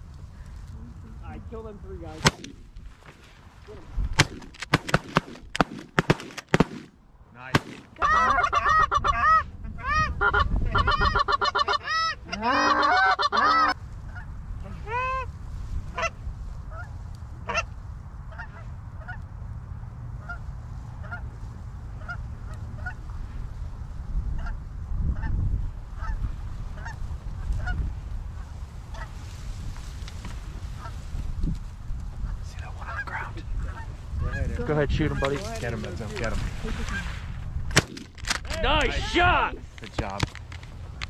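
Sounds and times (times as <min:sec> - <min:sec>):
sharp cracks: 0:02.2 - 0:03.1, 0:04.1 - 0:08.0, 0:37.7 - 0:39.0
geese honking: 0:08.0 - 0:15.3, 0:15.9 - 0:17.7, 0:18.3 - 0:19.2, 0:20.2 - 0:21.3, 0:21.9 - 0:23.2, 0:26.0 - 0:27.8, 0:28.4 - 0:29.2, 0:30.7 - 0:31.0, 0:32.3 - 0:35.5.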